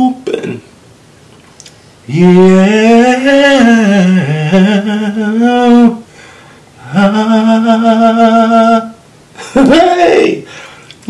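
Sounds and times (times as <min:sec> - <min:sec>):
man singing wordless run: 0:02.0 - 0:06.0, 0:06.8 - 0:09.0.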